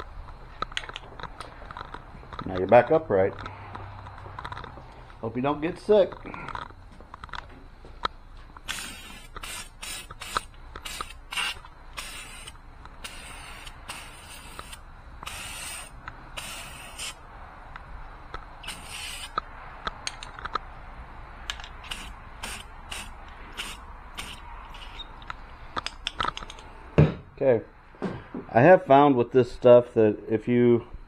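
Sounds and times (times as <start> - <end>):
aerosol spray can hissing bursts: 8.7 - 17.2, 18.6 - 19.4, 21.8 - 24.9.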